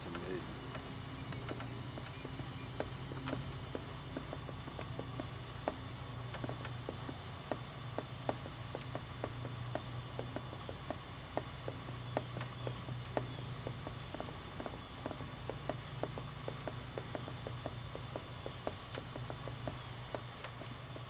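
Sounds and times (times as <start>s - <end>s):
horse hoofbeats: 0.0s - 21.0s
steady low hum: 0.0s - 21.0s.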